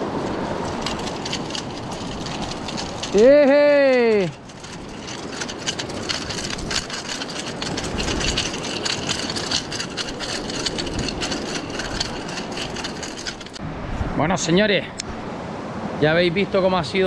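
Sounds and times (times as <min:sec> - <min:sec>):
surf washing over rocky shore: 0:00.0 - 0:08.6.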